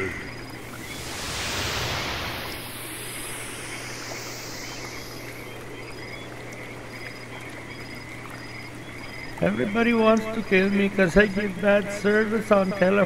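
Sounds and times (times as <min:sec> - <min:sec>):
steady hiss: 0:00.0 - 0:07.3
low hum: 0:00.6 - 0:07.0.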